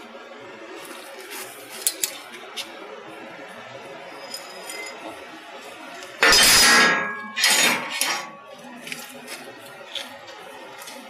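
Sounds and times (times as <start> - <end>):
steel clanking on steel plate: 6.2 - 8.4.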